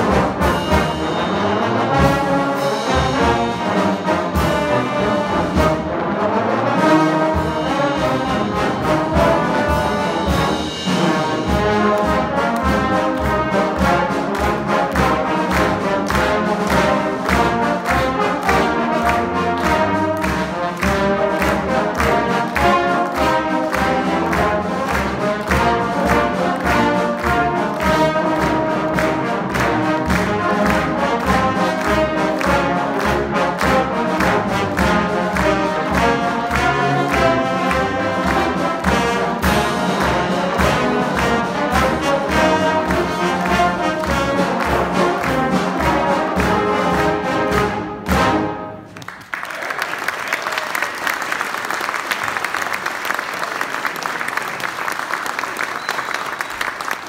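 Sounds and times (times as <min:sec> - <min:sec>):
trombone choir playing: 0:00.0 - 0:49.0
audience applauding: 0:11.9 - 0:47.8, 0:48.9 - 0:57.0.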